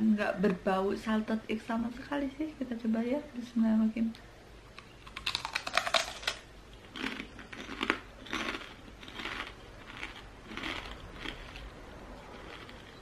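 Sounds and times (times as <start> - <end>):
crunchy chewing: 4.8 - 13.0.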